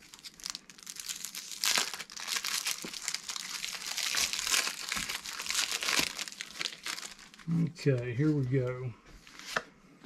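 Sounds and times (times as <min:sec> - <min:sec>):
cellophane wrapper crinkling and tearing: 0:00.0 - 0:08.8.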